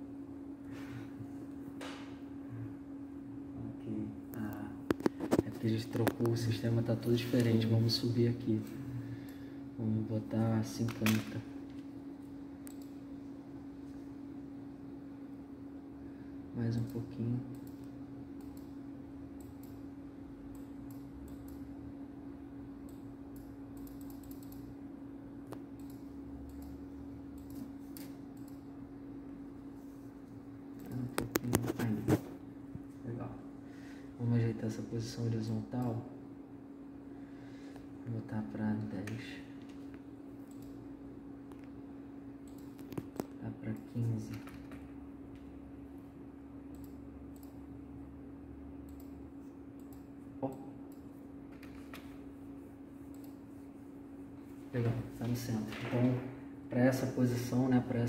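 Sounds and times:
low hum: 0:00.0 - 0:42.8
computer mouse clicking: 0:10.8 - 0:13.0, 0:16.7 - 0:18.8, 0:19.4 - 0:19.9, 0:20.5 - 0:21.7, 0:22.8 - 0:24.8, 0:25.4 - 0:28.7, 0:39.0 - 0:40.8, 0:42.4 - 0:44.8, 0:46.7 - 0:47.6, 0:48.8 - 0:49.2, 0:49.8 - 0:52.2, 0:53.0 - 0:53.4.

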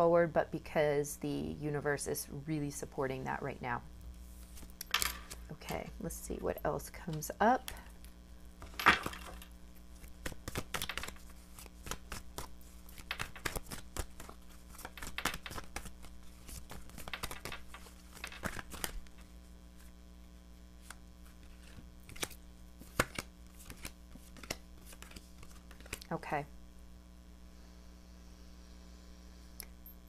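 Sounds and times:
low electrical hum: 0:00.0 - 0:30.0
cards shuffling: 0:04.4 - 0:05.6, 0:08.6 - 0:20.0, 0:20.8 - 0:26.1.

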